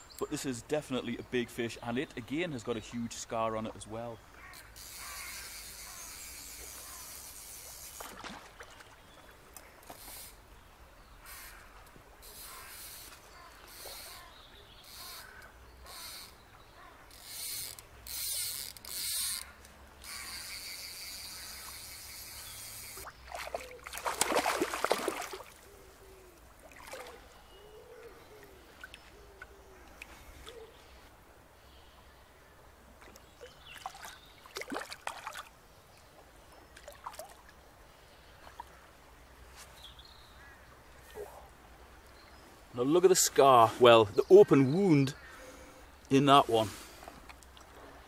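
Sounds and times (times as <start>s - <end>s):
fly reel ratchet clicking: 4.6s - 8.0s, 17.1s - 23.0s
fish splashing in water: 22.9s - 25.7s, 26.6s - 27.3s, 33.0s - 35.5s.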